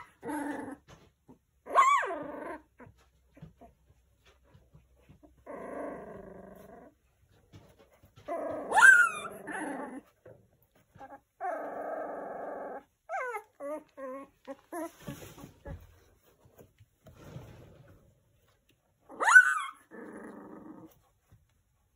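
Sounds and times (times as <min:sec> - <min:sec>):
puppy calling and squealing: 0:00.0 - 0:00.3, 0:01.6 - 0:02.7, 0:08.2 - 0:10.2, 0:10.9 - 0:15.0, 0:19.1 - 0:19.9
puppy yelping: 0:00.0 - 0:01.0, 0:01.6 - 0:03.7, 0:08.2 - 0:10.2, 0:10.8 - 0:15.0, 0:19.0 - 0:20.4.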